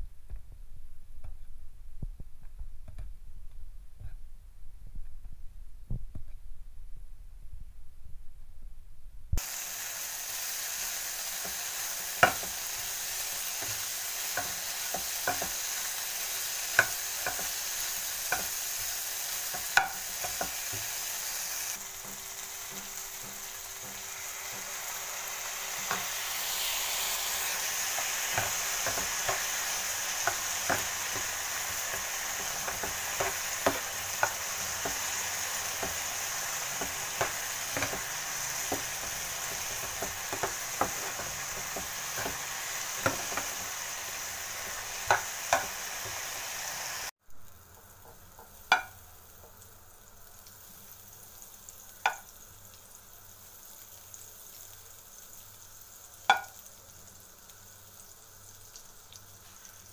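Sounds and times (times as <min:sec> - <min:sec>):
chicken sizzling in oil: 0:09.4 - 0:59.9
spoon scraping frying pan: 0:16.7 - 0:21.2, 0:21.9 - 0:46.3.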